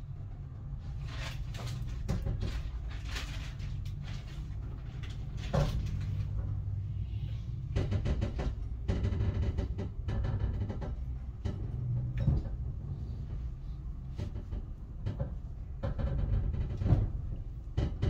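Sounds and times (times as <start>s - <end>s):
funicular car low hum: 0.0s - 18.0s
rattling clatter: 1.0s - 6.8s.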